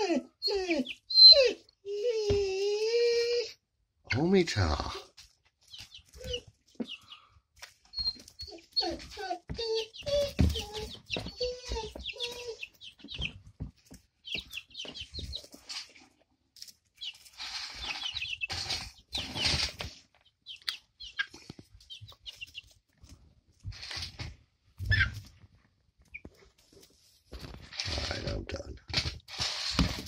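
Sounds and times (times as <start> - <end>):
chickens peeping: 0.0 - 3.2, 4.0 - 25.4, 26.0 - 27.8
scuffling and pecking in straw: 14.3 - 20.0.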